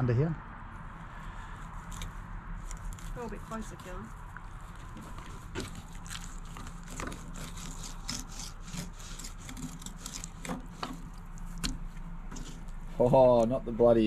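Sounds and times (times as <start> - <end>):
knife scraping fish on a board: 4.8 - 13.0.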